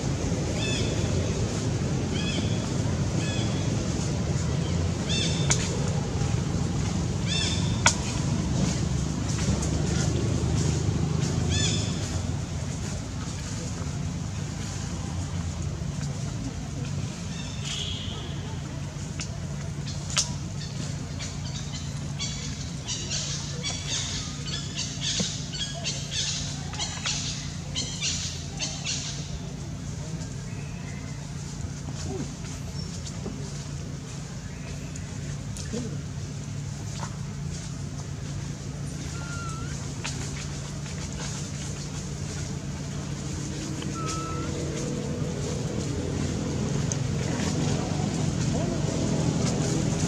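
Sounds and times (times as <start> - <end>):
steady low hum: 0.0 - 50.0
high buzzy animal calls: 39.0 - 39.9, 43.8 - 45.1.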